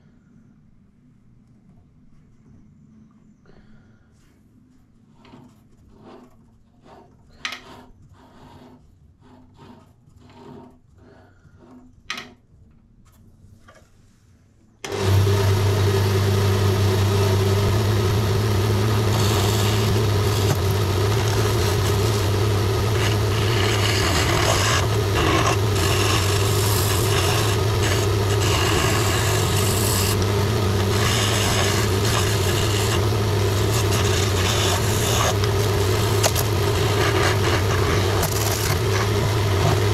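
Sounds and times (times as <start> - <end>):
chisel hissing cutting wood: 14.9 - 39.9
wood lathe motor hum: 14.9 - 39.9.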